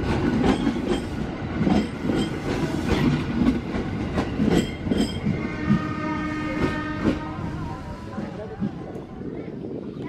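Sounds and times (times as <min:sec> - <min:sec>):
wheels clacking over rail joints: 0:00.0 - 0:05.9
electric train passing: 0:00.0 - 0:10.0.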